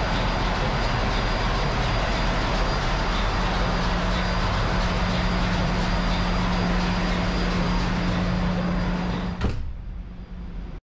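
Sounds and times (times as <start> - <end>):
engine-room machinery hum: 0.0 - 10.8
muffled machinery hum: 0.0 - 10.8
door shutting with a knock: 9.2 - 9.9.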